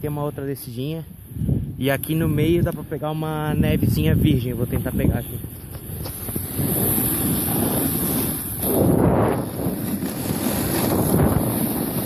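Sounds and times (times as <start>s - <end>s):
wind buffeting microphone: 0.8s - 12.0s
skis hissing on snow: 4.4s - 12.0s.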